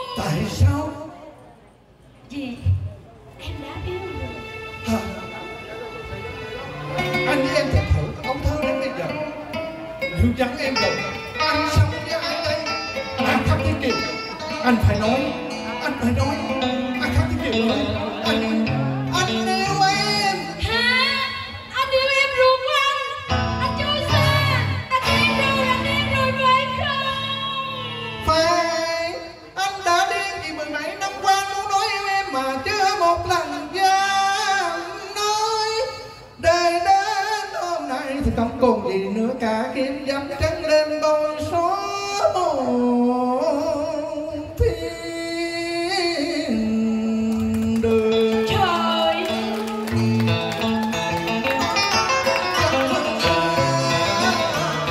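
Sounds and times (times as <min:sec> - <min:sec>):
instrumental accompaniment: 0:03.5 - 0:21.5, 0:47.7 - 0:54.9
man singing: 0:07.0 - 0:22.4, 0:23.1 - 0:54.9
woman singing with vibrato: 0:19.0 - 0:28.7, 0:46.8 - 0:51.0.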